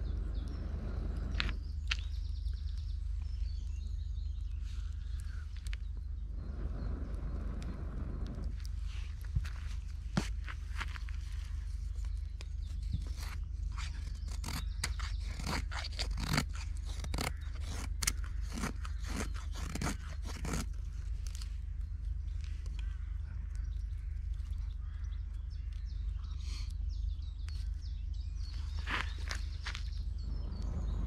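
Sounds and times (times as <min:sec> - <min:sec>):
knife scraping wood: 0:13.0 - 0:21.4.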